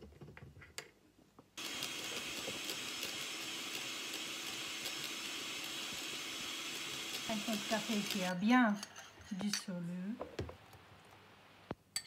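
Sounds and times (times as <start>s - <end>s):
electric hand mixer whipping: 1.6s - 8.4s.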